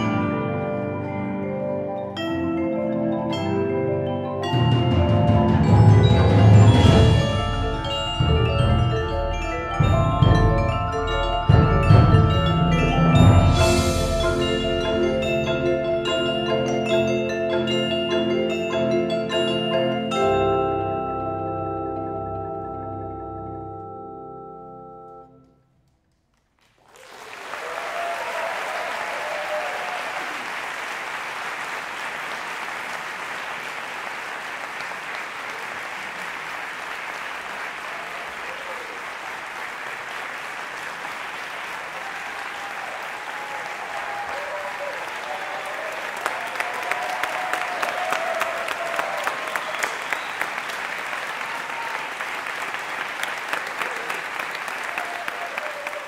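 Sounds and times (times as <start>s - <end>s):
mallet percussion chord ringing: 0.0s - 25.4s
audience applause: 26.1s - 56.0s
sharp claps: 28.5s - 56.0s.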